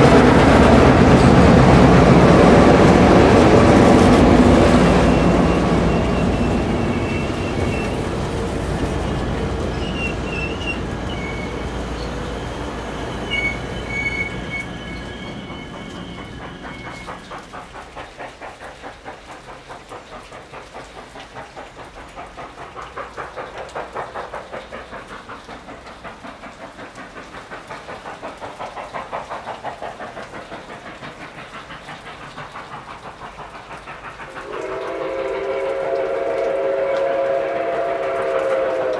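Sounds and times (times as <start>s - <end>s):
steam locomotive exhaust beat: 0.0s - 38.9s
steam locomotive rumbling by: 0.0s - 38.9s
wheel squeals: 4.8s - 8.2s, 8.8s - 17.3s.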